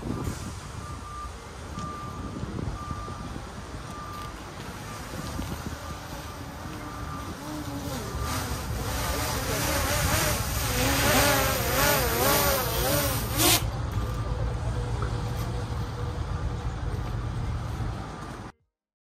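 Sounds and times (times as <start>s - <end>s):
drone propellers buzzing: 5.0s - 13.8s.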